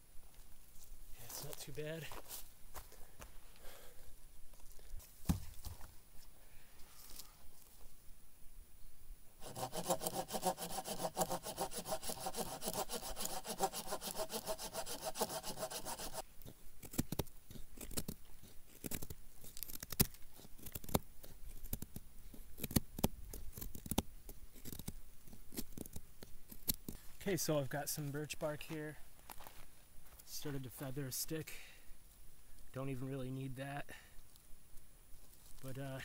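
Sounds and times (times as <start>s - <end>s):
knife shaving wooden stick: 9.4s - 27.1s.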